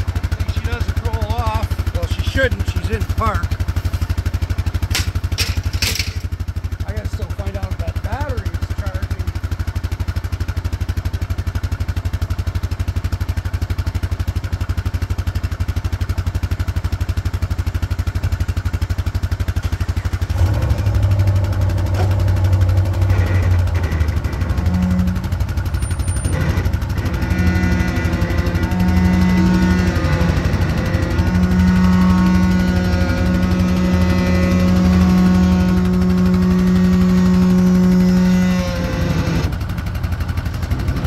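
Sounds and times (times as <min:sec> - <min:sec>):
atv engine idling: 0:00.0 - 0:41.0.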